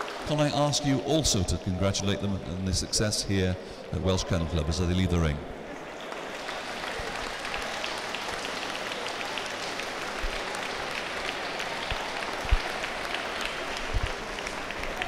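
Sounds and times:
audience applauding: 0.0 - 1.5, 5.8 - 15.0.

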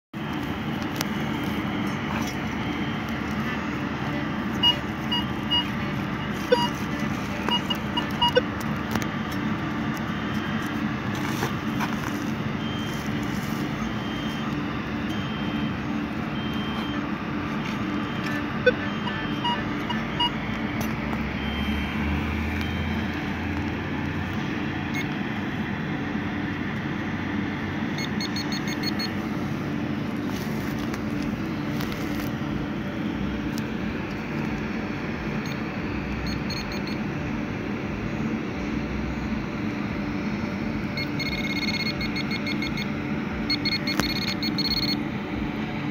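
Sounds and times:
high electronic beeps: 0.2 - 8.6, 12.6 - 20.5, 21.1 - 23.4, 27.9 - 29.2, 36.2 - 37.0, 41.0 - 45.0
background hum and hiss: 0.2 - 45.9.

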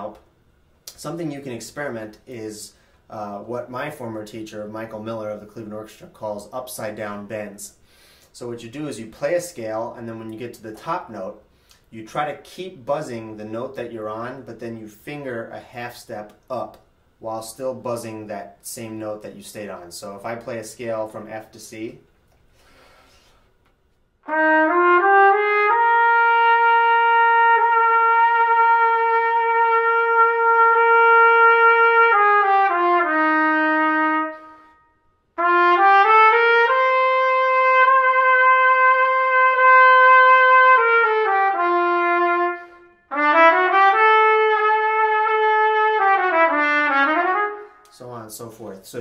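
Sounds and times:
player breathing: 7.8 - 8.3, 22.5 - 23.6
solo trumpet playing scales: 24.2 - 48.0.

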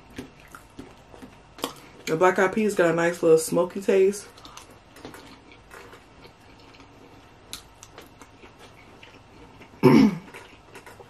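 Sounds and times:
soft chewing clicks: 0.1 - 2.2, 4.3 - 11.0.

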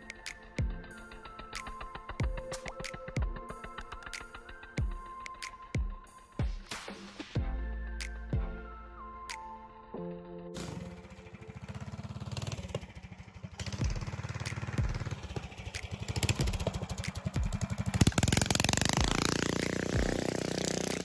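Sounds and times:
small engine running hard: 10.6 - 21.0.

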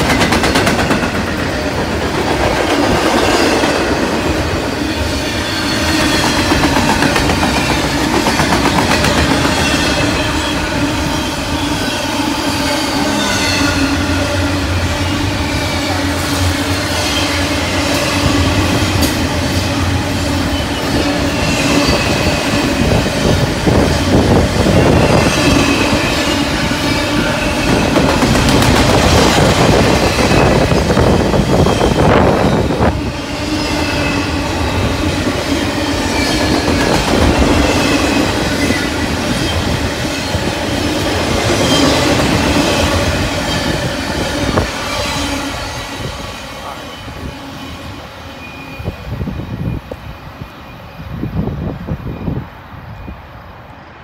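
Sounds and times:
train wheels clacking: 0.0 - 11.8, 15.1 - 34.6, 35.2 - 47.7
freight train rumbling: 0.0 - 54.0
wheel squeal: 47.5 - 50.0.

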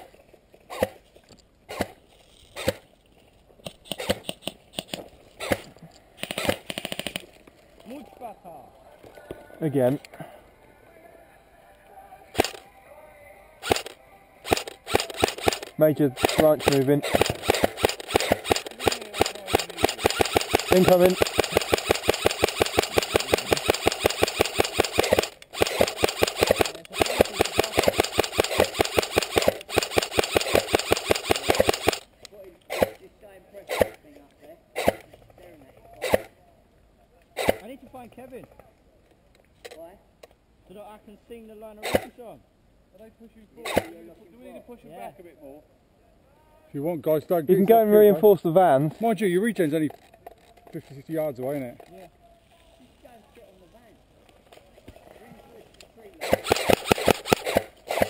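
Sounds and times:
airsoft rifle shots: 3.8 - 7.2, 12.4 - 12.6, 13.6 - 32.1, 33.7 - 34.0, 34.8 - 35.1, 37.4 - 37.7, 56.2 - 58.0.

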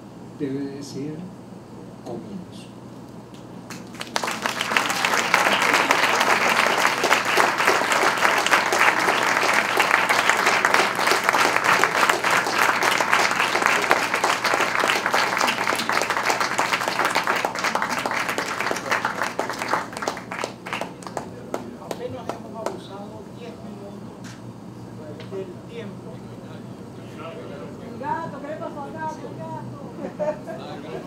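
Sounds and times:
audience applauding: 3.7 - 22.8.

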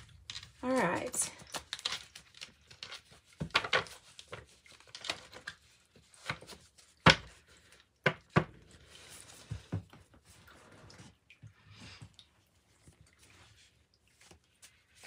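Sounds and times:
cards being shuffled: 0.2 - 7.3.

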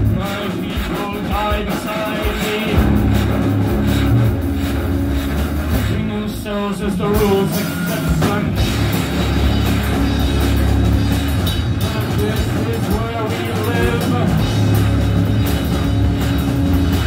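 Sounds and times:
distorted electric guitars: 0.0 - 17.0
drum kit: 0.0 - 17.0.

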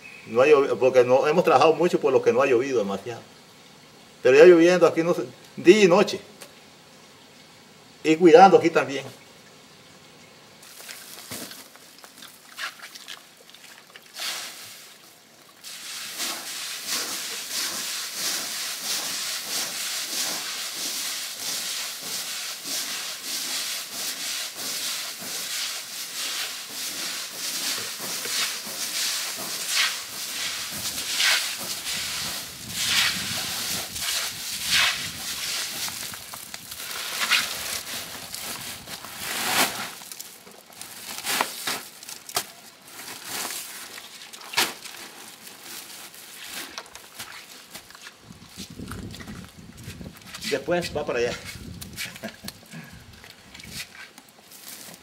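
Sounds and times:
coffee beans rustling into sack: 10.6 - 12.8, 14.1 - 53.0, 53.7 - 55.0
plastic sack crinkling: 10.6 - 13.0, 14.1 - 50.5, 51.5 - 55.0.

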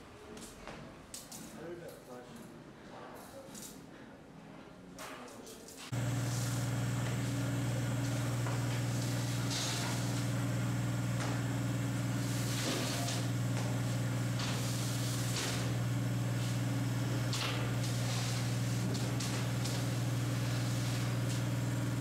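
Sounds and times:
hydraulic power unit humming: 5.9 - 22.0.

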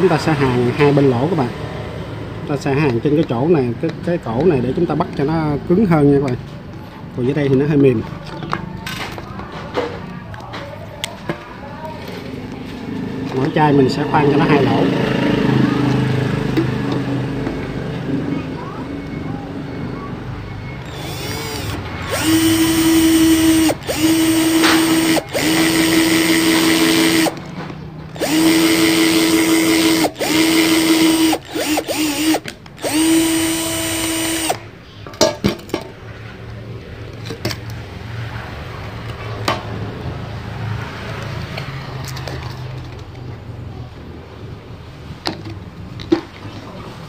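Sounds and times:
drill motor whine: 20.8 - 27.3, 28.2 - 34.6.

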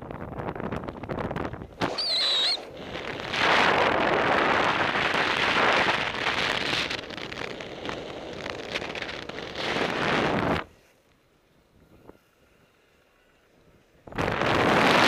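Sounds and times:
wind rushing over microphone: 0.0 - 10.8, 14.0 - 15.0.

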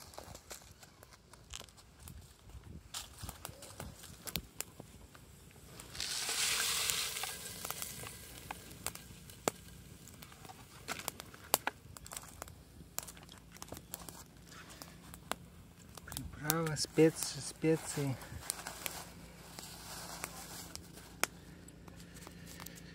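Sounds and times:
foil sachet crinkling: 5.7 - 15.3, 15.9 - 22.9.

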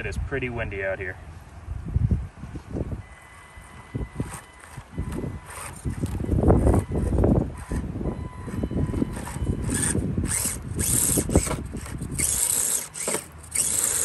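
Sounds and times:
wind rumble on microphone: 0.0 - 12.6
rc car motor whirring: 3.0 - 14.0.

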